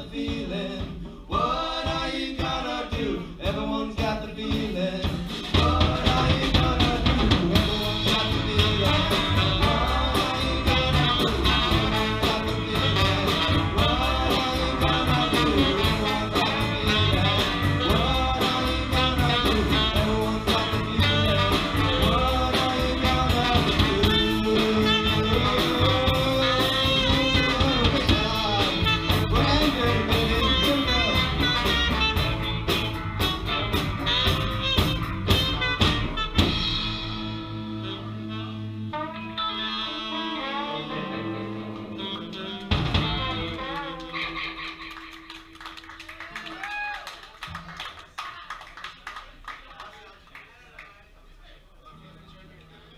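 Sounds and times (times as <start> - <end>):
person singing: 0.0 - 32.0, 39.4 - 44.9
blues band playing: 0.2 - 47.8.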